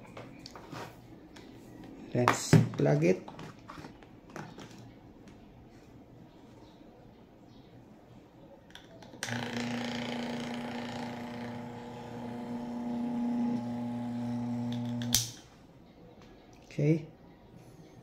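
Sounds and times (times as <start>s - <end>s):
fan motor humming: 9.3s - 15.3s.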